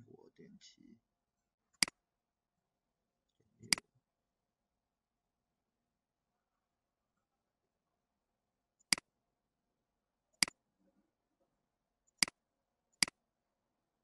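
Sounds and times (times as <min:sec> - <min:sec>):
computer mouse clicks: 0:08.8 - 0:09.1.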